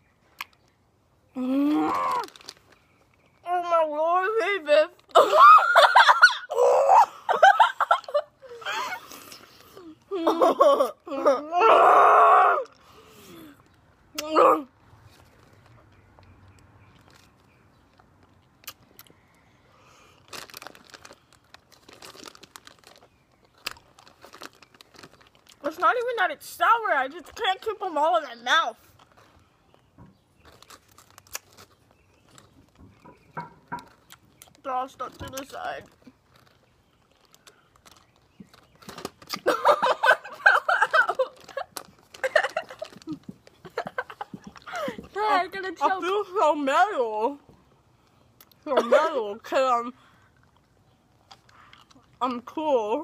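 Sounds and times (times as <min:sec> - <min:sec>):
candy wrapper crinkling: 0:01.7 - 0:03.4, 0:20.2 - 0:26.0, 0:30.4 - 0:32.8, 0:33.8 - 0:39.5, 0:40.7 - 0:44.7.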